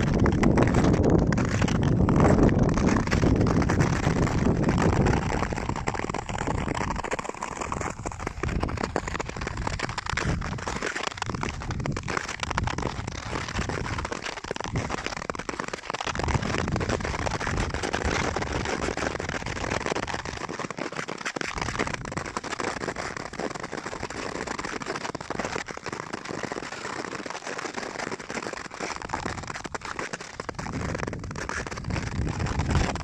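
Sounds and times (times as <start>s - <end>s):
wind rumble on microphone: 0.0s - 15.4s, 16.1s - 20.4s, 21.5s - 22.4s, 29.0s - 33.0s
skate blades scraping ice: 0.0s - 33.0s.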